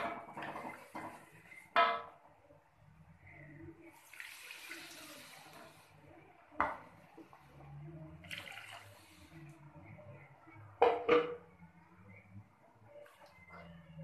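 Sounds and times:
water pouring into metal wok: 3.9 - 5.9, 8.2 - 9.4.

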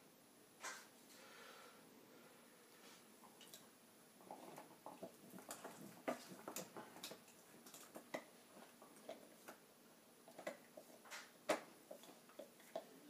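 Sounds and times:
dog gnawing a bone: 4.2 - 9.6, 10.2 - 13.0.

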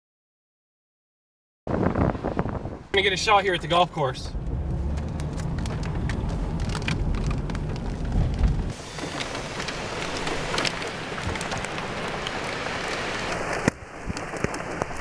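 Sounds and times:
wind hiss: 1.7 - 15.0
low rumble: 1.8 - 12.1
rain pattering on a car: 3.0 - 15.0.

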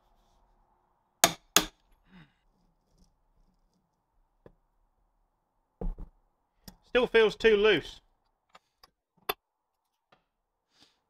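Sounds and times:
faint handling sounds: 1.9 - 4.6.

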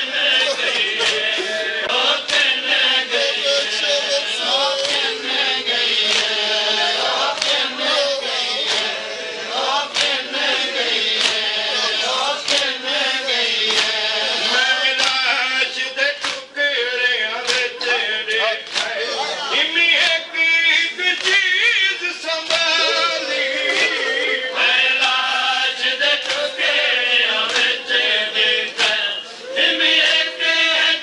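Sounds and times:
men chanting a lament in unison: 0.0 - 31.0
hands slapping on chests: 0.8 - 1.3, 1.9 - 2.6, 4.8 - 5.1, 6.0 - 6.4, 7.3 - 7.7, 9.9 - 10.3, 11.0 - 11.6, 12.4 - 12.8, 13.6 - 14.0, 15.0 - 15.3, 16.2 - 16.5, 18.6 - 19.0, 21.2 - 21.5, 25.0 - 25.3, 26.1 - 26.5, 27.4 - 27.8.

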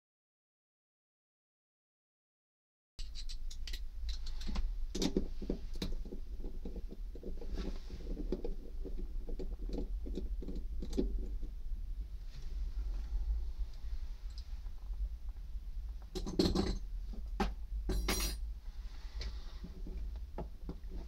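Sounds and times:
small plastic clicks and rattles: 3.0 - 7.5, 8.1 - 11.4
steady low hum: 3.0 - 21.0.

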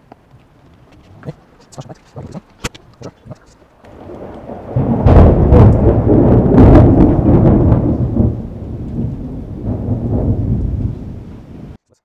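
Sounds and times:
rain falling: 0.0 - 11.8
thunder rolling: 3.9 - 11.8.

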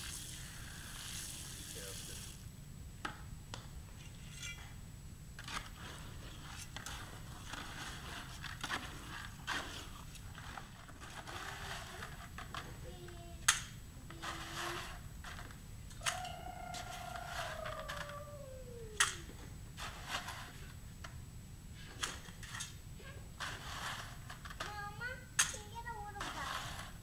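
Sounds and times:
trowel scraping concrete in bucket: 5.5 - 12.2, 23.4 - 24.4, 26.2 - 27.0.

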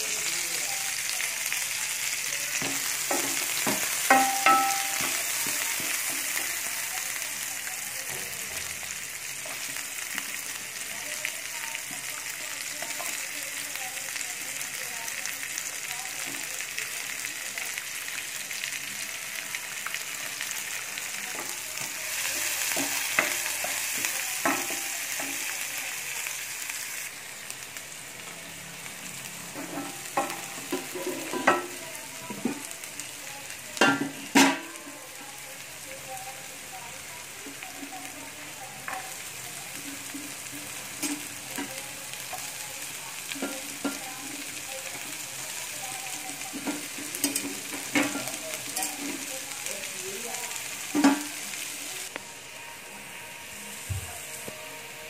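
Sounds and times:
onions sizzling in a pan: 0.0 - 55.0.

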